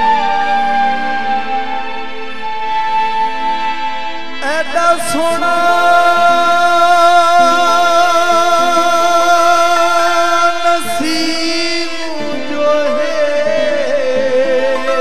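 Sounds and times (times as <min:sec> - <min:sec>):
devotional singing with accompaniment: 0:00.0 - 0:15.0.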